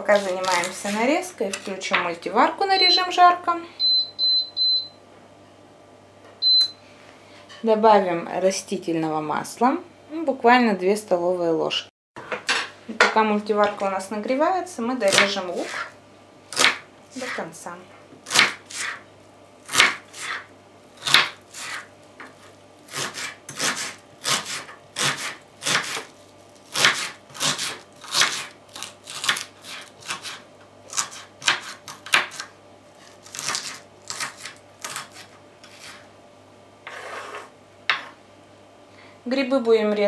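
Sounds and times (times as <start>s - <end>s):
knife scraping board: 0.0s - 1.8s, 15.2s - 16.0s, 16.6s - 17.5s, 18.3s - 19.0s, 19.7s - 26.1s, 26.7s - 36.1s, 36.8s - 38.1s
knife chopping on wooden board: 16.6s - 16.8s, 18.2s - 19.0s, 19.7s - 20.4s, 21.0s - 26.1s, 26.7s - 32.5s.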